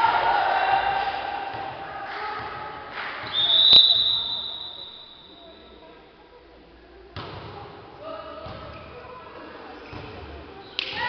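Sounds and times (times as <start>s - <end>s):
referee's whistle blast: 3.3s - 5.5s.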